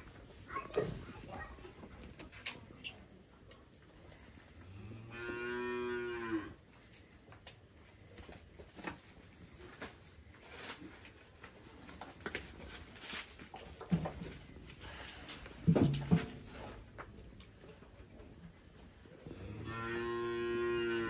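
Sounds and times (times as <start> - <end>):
faint knocks and rustles: 7.3 - 19.0
cow mooing: 19.4 - 21.0.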